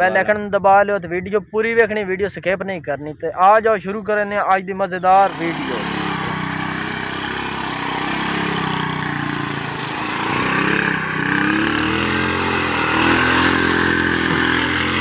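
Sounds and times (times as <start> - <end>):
motorcycle engine revving: 5.1 - 15.0.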